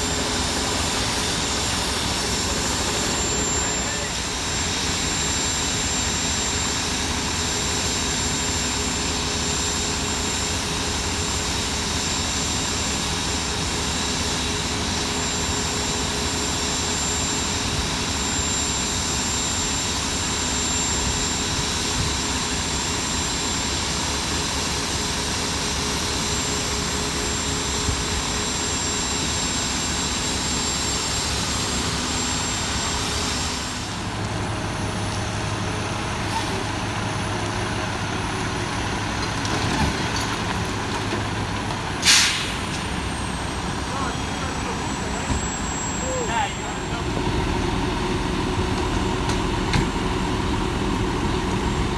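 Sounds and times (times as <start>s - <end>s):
pump whine: 0.0s - 51.9s
fire hose water rushing: 42.0s - 45.3s.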